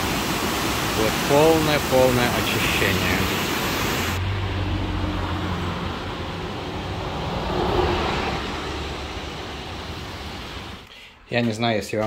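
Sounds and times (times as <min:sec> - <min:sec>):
creek pouring over rapids: 0:00.0 - 0:04.2.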